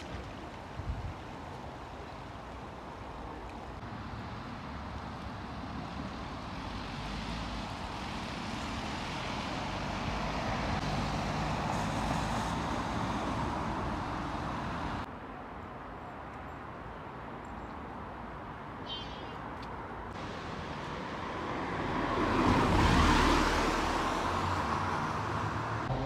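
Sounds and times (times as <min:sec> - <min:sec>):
vehicle passing on wet street: 0:00.0 - 0:15.1, 0:20.1 - 0:26.0.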